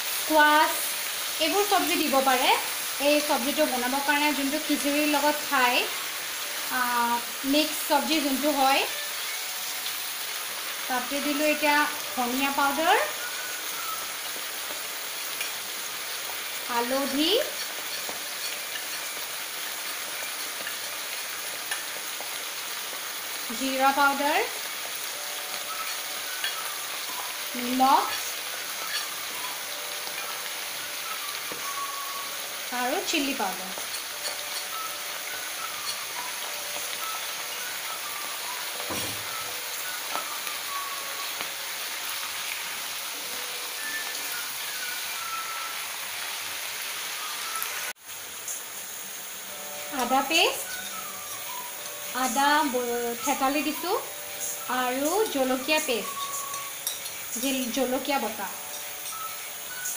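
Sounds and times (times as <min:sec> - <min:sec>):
vegetables sizzling in hot oil: 0:00.0 - 0:59.9.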